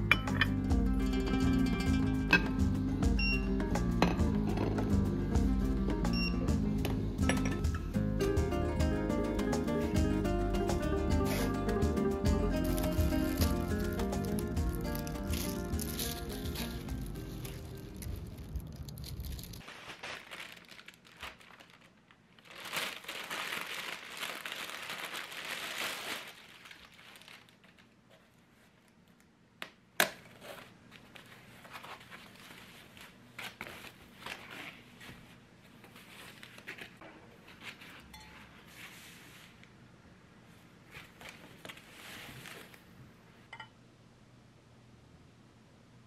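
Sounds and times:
packaging crinkling and rustling: 12.6 - 28.5.

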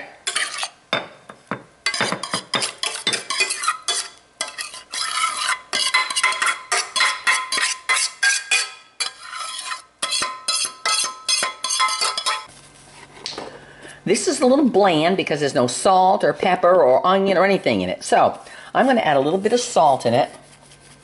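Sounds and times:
metal spoon scraping saucepan: 0.2 - 0.8, 1.8 - 12.5.

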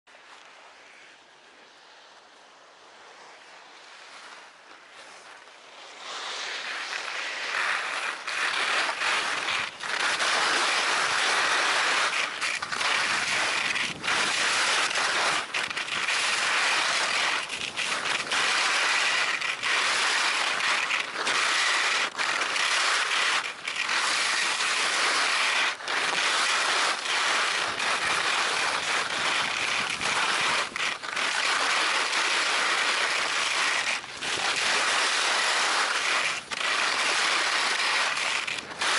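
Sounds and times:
skis scraping over snow: 0.1 - 38.9.

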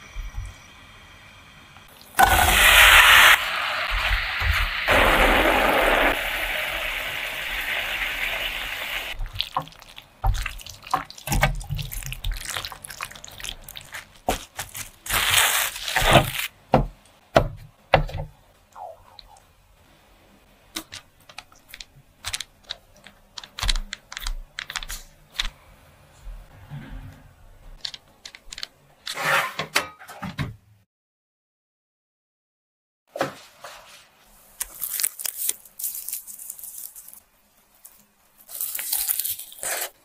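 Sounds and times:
pan hissing: 2.1 - 9.2
plastic wrap crinkling: 9.1 - 16.5, 34.5 - 40.0.

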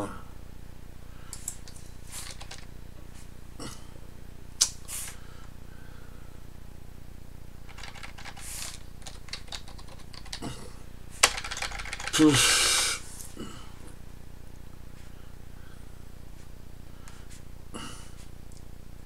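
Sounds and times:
keyboard typing: 1.4 - 2.7, 7.7 - 10.4, 11.2 - 12.3.

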